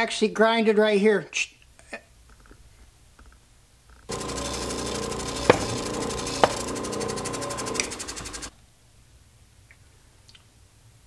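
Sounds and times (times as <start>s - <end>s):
bench grinder motor running: 4.1s - 8.5s
sharp clicks: 4.1s - 8.5s.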